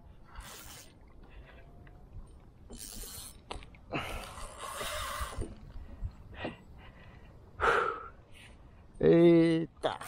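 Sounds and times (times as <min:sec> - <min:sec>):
effortful breathing and exhales: 0:00.2 - 0:01.8, 0:02.8 - 0:08.7.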